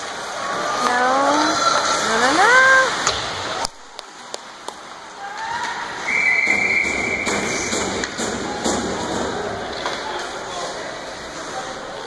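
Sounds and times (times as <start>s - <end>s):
murmur of rink noise: 0.0s - 12.0s
referee's whistle: 6.0s - 7.8s.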